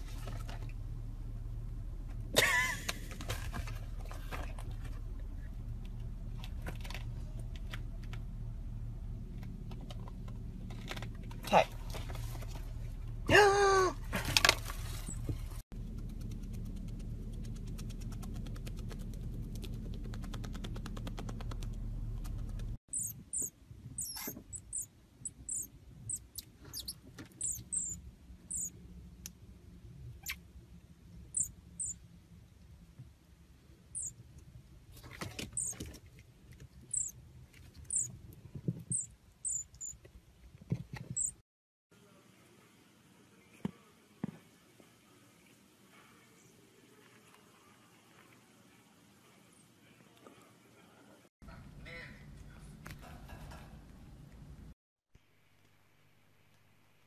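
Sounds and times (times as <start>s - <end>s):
steady low hum: 0.0s - 13.3s, 14.0s - 41.4s
marmoset high-pitched chirps: 22.9s - 28.7s, 31.3s - 32.0s, 34.0s - 34.2s, 35.6s - 35.8s, 36.9s - 37.2s, 37.9s - 38.1s, 38.9s - 40.0s, 41.1s - 41.4s.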